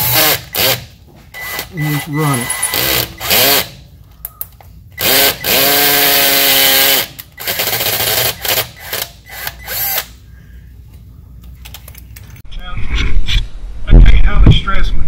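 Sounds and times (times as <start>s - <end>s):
cordless drill whining: 5.0s - 10.1s.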